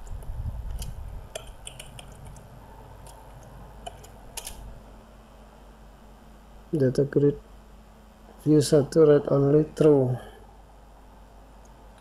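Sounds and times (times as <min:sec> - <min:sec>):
keyboard key clicks: 0:00.0 - 0:04.6.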